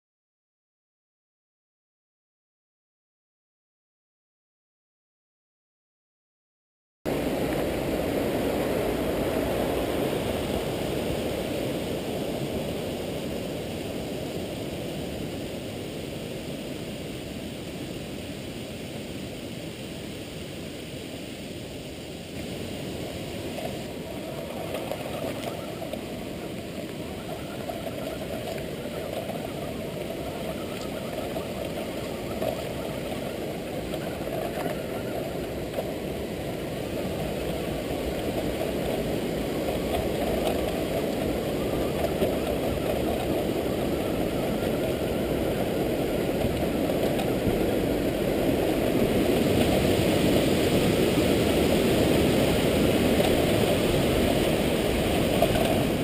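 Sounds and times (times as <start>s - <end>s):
rc truck motor and tyres rushing: 22.4s - 56.0s.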